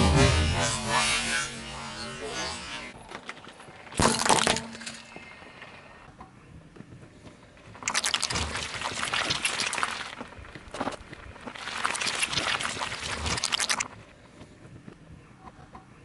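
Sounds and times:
car tyre squashing jelly: 0:07.8 - 0:14.0.

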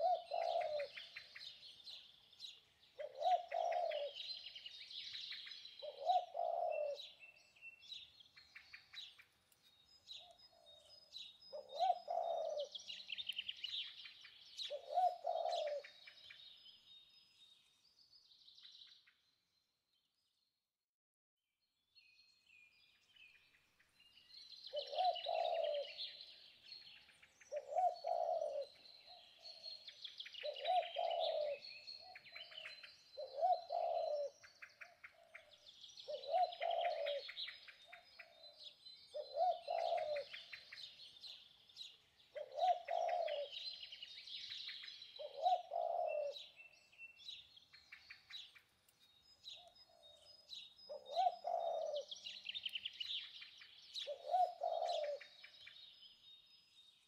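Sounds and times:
birds chirping and trilling: 0:00.0 - 0:20.5, 0:22.0 - 0:57.0
low repeating bird call: 0:50.9 - 0:52.6, 0:54.0 - 0:55.4.

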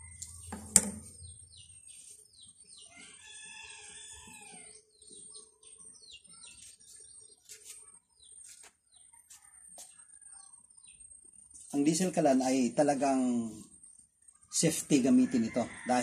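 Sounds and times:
small birds chirping: 0:00.0 - 0:15.8.

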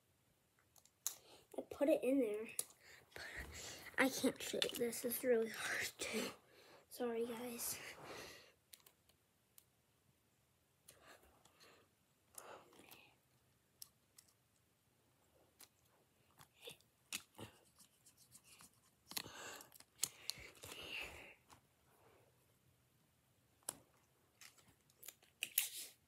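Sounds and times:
plastic pieces clicking and rustling: 0:04.1 - 0:05.2, 0:13.8 - 0:14.4, 0:18.6 - 0:21.1, 0:23.6 - 0:25.9.

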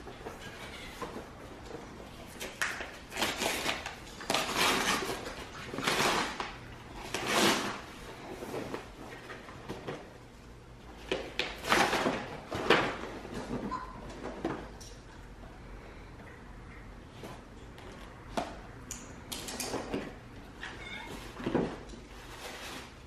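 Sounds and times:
paper tearing and rustling: 0:03.1 - 0:07.9.

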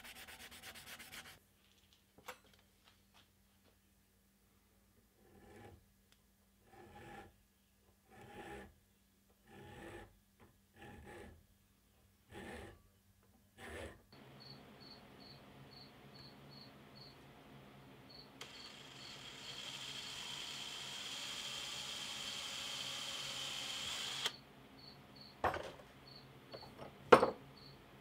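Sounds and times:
hand file rasping on metal: 0:06.6 - 0:07.3, 0:08.1 - 0:08.7, 0:09.4 - 0:10.1, 0:10.8 - 0:11.4
electric drill boring into wood: 0:18.4 - 0:24.4.

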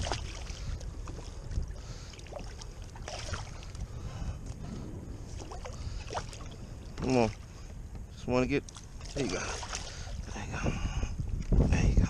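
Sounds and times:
wind rumble on microphone: 0:00.0 - 0:12.0.

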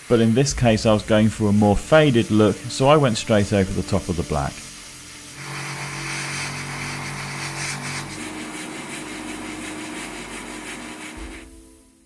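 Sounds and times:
airbrush hissing: 0:00.0 - 0:11.7
air compressor motor hum: 0:04.6 - 0:11.8.

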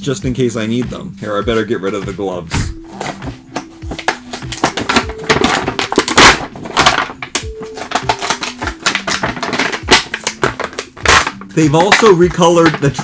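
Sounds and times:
simple background tune: 0:00.0 - 0:13.0
packaging being torn open: 0:03.9 - 0:13.0.

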